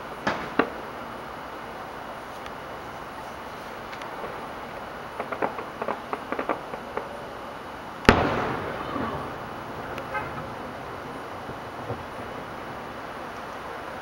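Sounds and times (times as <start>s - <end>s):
fireworks crackling pops: 0.0s - 7.4s, 8.0s - 14.0s
firework shell burst: 8.0s - 12.0s.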